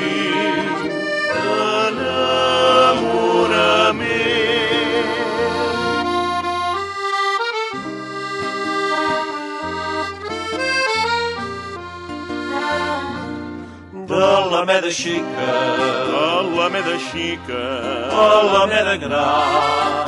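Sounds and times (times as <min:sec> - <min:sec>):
person singing: 0:00.0 - 0:06.4, 0:13.9 - 0:20.0
bass notes: 0:00.0 - 0:14.5
accordion chords: 0:00.0 - 0:20.0.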